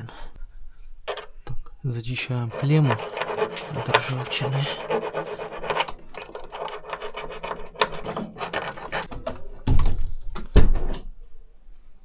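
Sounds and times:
small tool scraping metal: 2.5 - 9.1.

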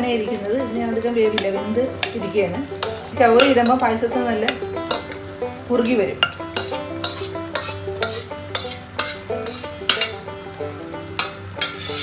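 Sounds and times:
thick mixture sizzling: 0.0 - 12.0
wooden spoon scraping a pot: 6.2 - 10.2, 11.2 - 12.0.

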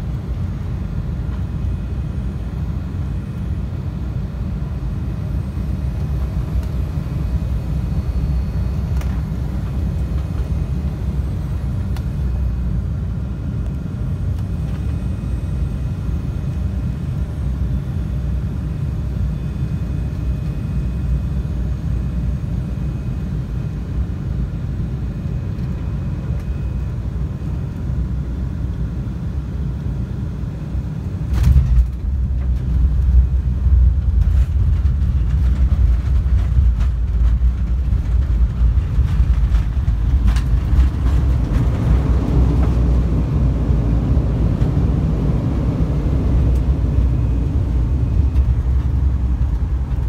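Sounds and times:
jet airliner cabin rumble: 0.0 - 50.0.

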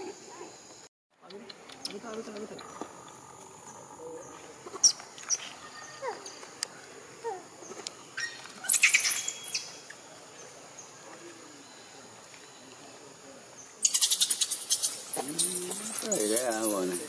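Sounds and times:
monkeys squeaking: 8.2 - 9.7, 13.8 - 17.0.

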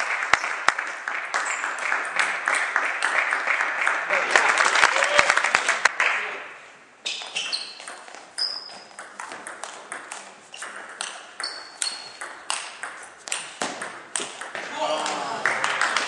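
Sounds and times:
shoes squeaking on floor: 7.0 - 9.0, 11.4 - 12.2.

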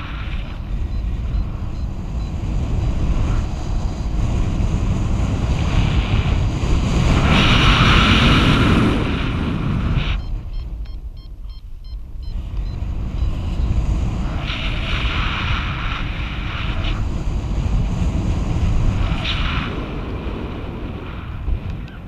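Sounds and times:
wind buffeting microphone: 0.0 - 22.0
high beeps: 0.6 - 2.4, 10.1 - 13.8.

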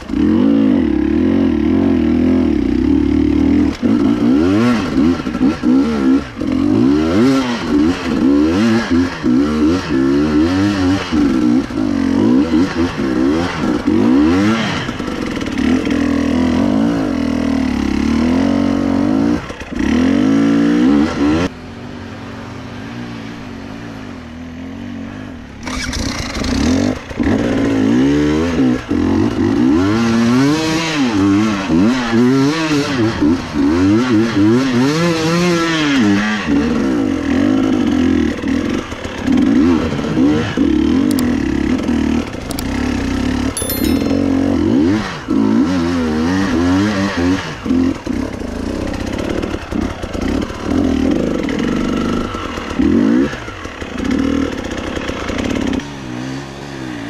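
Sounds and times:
dirt bike engine revving: 0.0 - 23.3.

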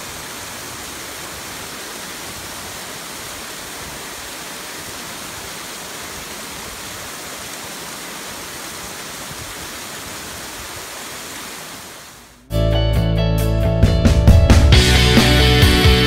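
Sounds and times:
waterfall rushing: 0.0 - 12.4.

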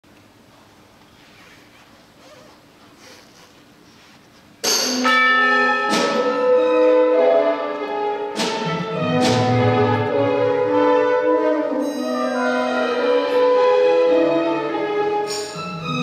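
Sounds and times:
bell-like strikes: 4.7 - 7.7, 11.8 - 13.3
orchestra sustained chords: 5.0 - 16.0.

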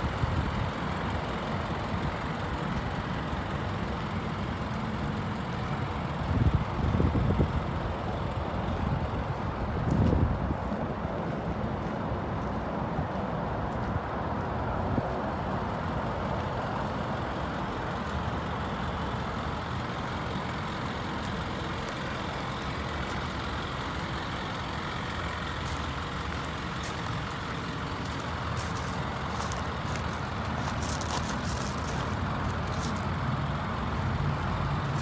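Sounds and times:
truck engine idling: 0.0 - 35.0
footsteps on gravel: 8.7 - 15.1, 25.6 - 33.2.

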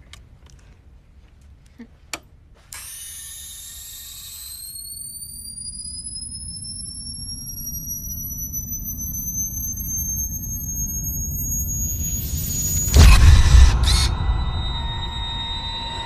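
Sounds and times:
camera motor whirring: 2.7 - 14.5
high whine rising in pitch: 3.9 - 16.0
low rumble: 10.7 - 16.0.

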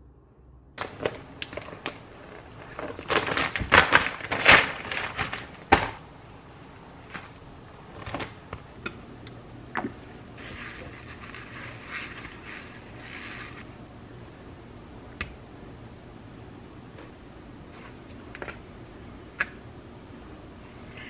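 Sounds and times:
paper towel wiping a frying pan: 10.4 - 13.7.

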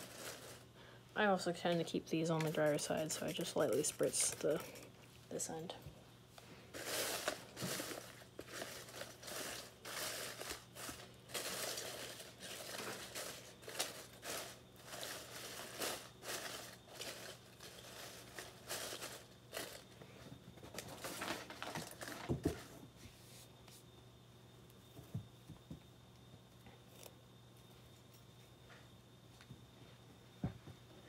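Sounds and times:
dry leaves rustling: 0.0 - 0.6, 6.7 - 19.9.

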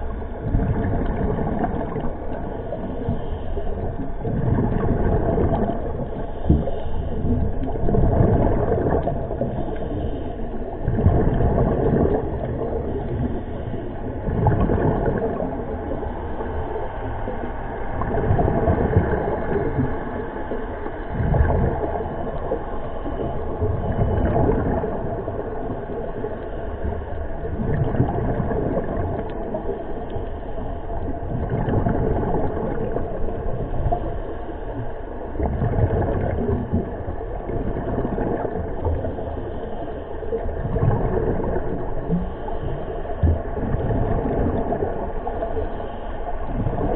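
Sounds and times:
exhaled bubbles: 0.0 - 46.9
diver breathing through regulator: 2.6 - 8.4, 9.3 - 17.6.

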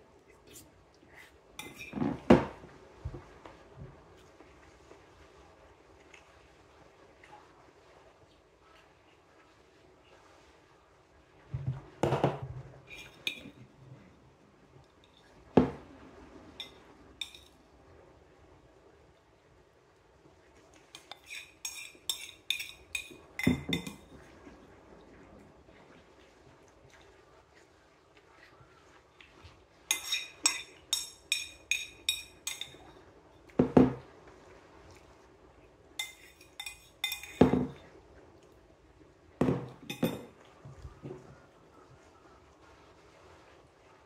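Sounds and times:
spoon scraping ceramic plate: 1.6 - 2.4, 12.9 - 13.6, 16.6 - 17.5, 21.0 - 24.0, 29.9 - 32.8, 36.0 - 37.8, 39.5 - 40.3
plate knocking on wooden table: 39.4 - 40.3.

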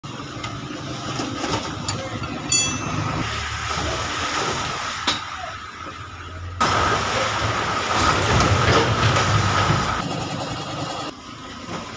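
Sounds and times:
traffic on wet road: 2.8 - 10.0
tyres hissing through water: 6.6 - 10.0.

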